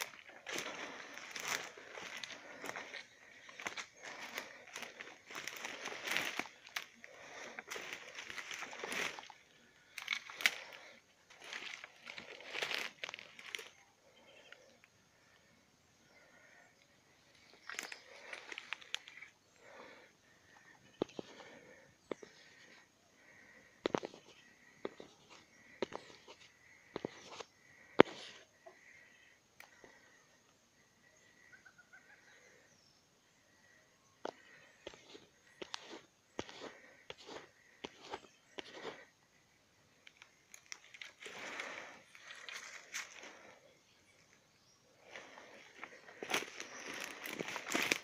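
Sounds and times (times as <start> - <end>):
dry leaves crunching underfoot: 0.0 - 13.7, 45.2 - 48.0
twigs snapping: 0.0 - 13.7.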